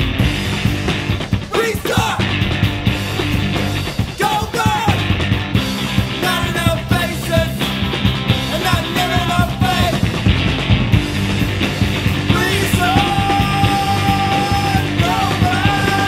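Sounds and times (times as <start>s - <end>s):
bass guitar: 0.0s - 16.0s
drums: 0.0s - 16.0s
electric guitar: 0.0s - 16.0s
rock song: 0.0s - 16.0s
person singing lead vocal: 1.5s - 2.3s, 4.1s - 5.1s, 6.1s - 7.7s, 8.5s - 10.1s, 12.2s - 16.0s.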